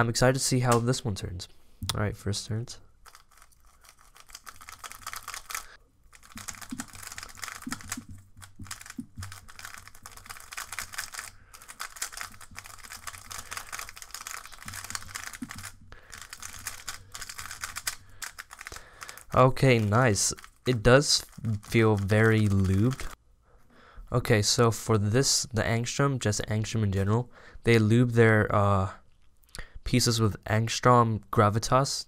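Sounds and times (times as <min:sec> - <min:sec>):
plastic puzzle cube clicking: 0:03.0 - 0:23.2.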